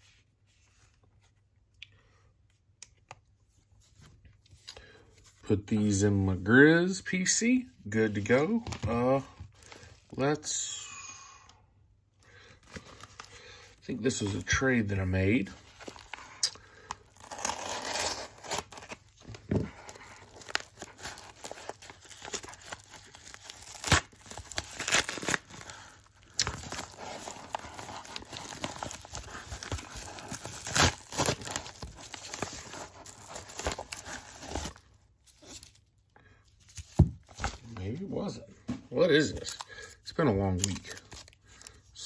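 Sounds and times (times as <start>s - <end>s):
padded mailer tearing and crinkling: 15.5s - 34.8s.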